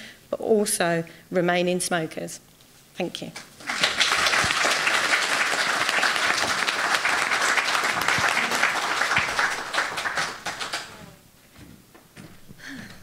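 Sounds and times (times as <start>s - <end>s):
audience applauding: 3.5s - 11.2s.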